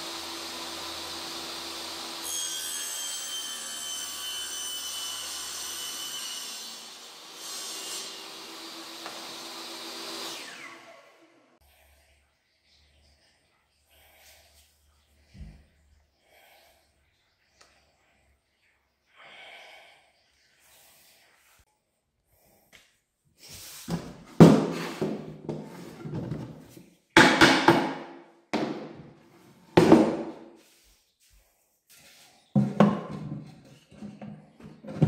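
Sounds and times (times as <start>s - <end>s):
plywood panels knocking: 27.2s - 29.0s, 29.8s - 30.3s.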